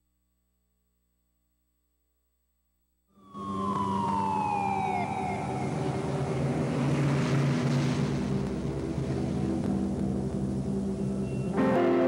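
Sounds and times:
emergency siren falling in pitch: 3.2 - 7.4
steady low drone: 3.2 - 12.0
rush of noise: 3.3 - 12.0.

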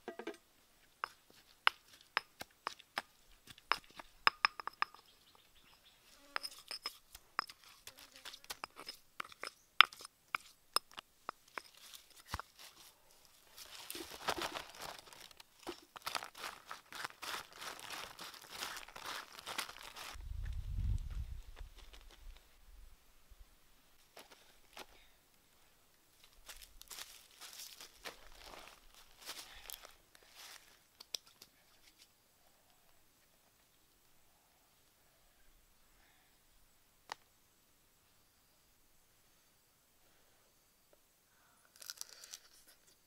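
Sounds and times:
stone pestle knocking in mortar: 3.7 - 5.0
hand mixing food on leaf: 15.9 - 20.2.

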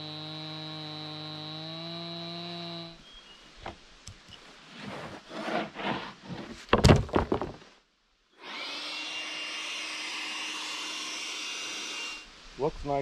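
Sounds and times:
leaf blower whining: 0.0 - 3.0, 8.4 - 12.2
wood knocking and rubbing: 4.8 - 7.7.

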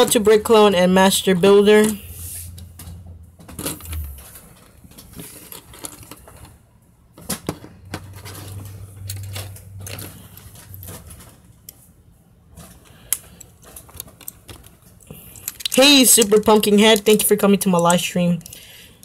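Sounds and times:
plastic pieces clicking and clattering: 3.5 - 6.6, 12.6 - 19.0.

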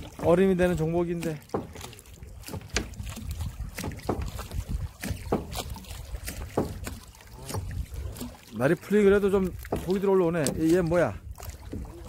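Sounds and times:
knocks and clicks in rowboat: 0.0 - 12.0
wind rumble on microphone: 2.7 - 8.4.

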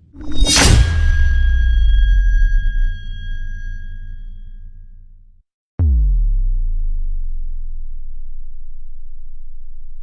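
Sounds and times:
deep sustained bass boom: 0.0 - 10.0
high ringing tone: 0.1 - 5.2.

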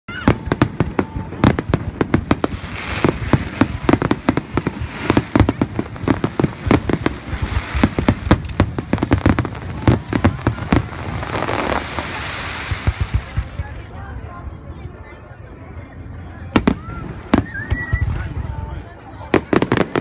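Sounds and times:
rushing hiss: 0.1 - 14.0.

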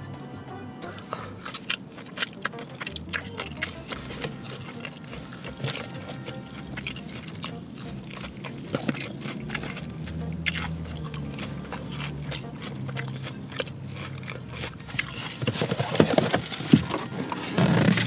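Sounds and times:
person chewing noodles: 0.8 - 18.0
paper packaging rustling: 15.2 - 18.0.

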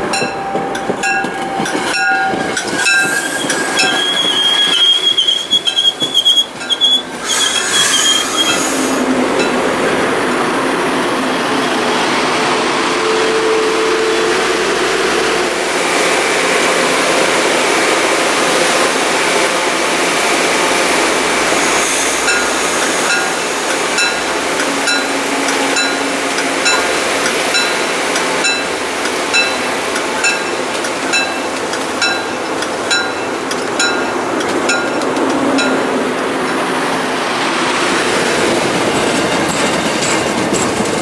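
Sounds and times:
train wheels rumbling on rail: 0.0 - 41.0
metallic bell ding: 0.2 - 3.0
high wheel squeals: 1.5 - 9.0.

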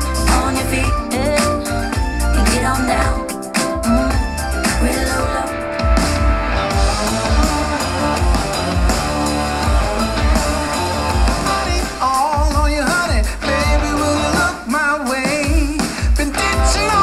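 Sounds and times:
higher melodic line: 0.0 - 12.1
strong bass beat: 0.0 - 14.6
rock music with guitar and drums: 0.0 - 17.0.

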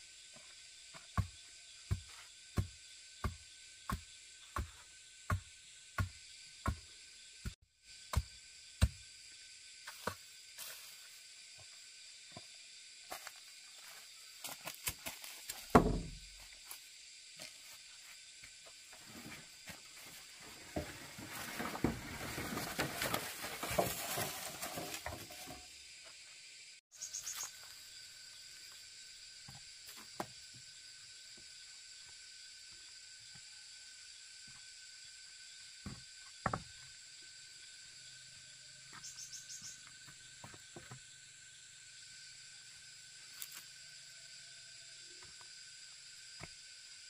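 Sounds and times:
insect buzz: 0.0 - 47.0
hoe chopping dry soil: 1.0 - 9.1
rustling and scraping: 18.8 - 25.7.

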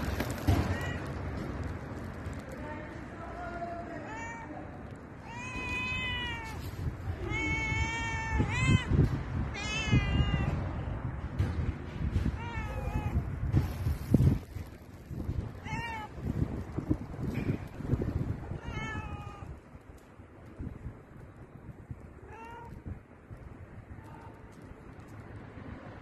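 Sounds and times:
cat meowing: 5.2 - 10.6, 12.4 - 13.3, 15.6 - 16.2, 18.5 - 19.6, 22.2 - 22.8.

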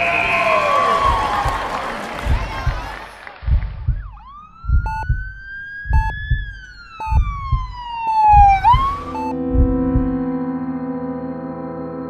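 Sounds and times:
heartbeat thumping: 1.0 - 10.2
siren wail: 3.9 - 10.4
short electronic beep: 4.9 - 5.2, 7.0 - 7.4, 8.2 - 9.4.

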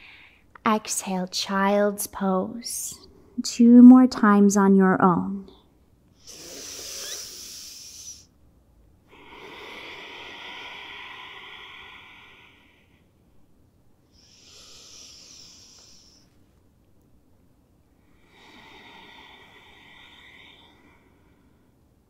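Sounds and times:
woman breathing: 0.0 - 0.5, 6.2 - 8.3, 9.1 - 13.5, 14.1 - 16.6, 17.9 - 22.0.

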